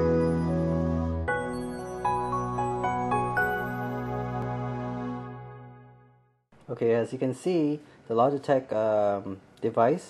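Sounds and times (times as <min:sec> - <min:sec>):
instrumental music with held chords: 0:00.0 - 0:06.3.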